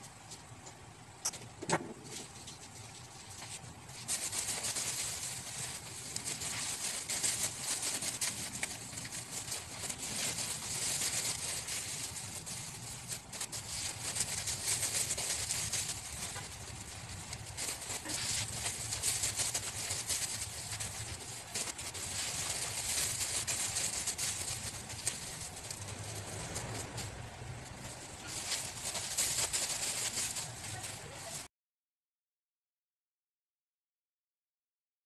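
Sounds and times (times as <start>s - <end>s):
plastic bags rustling and crinkling: 1.9s - 31.5s.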